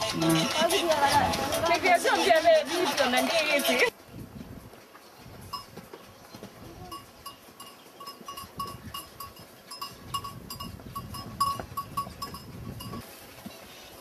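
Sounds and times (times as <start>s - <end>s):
livestock bell clanking: 5.5s - 5.8s, 6.8s - 13.0s.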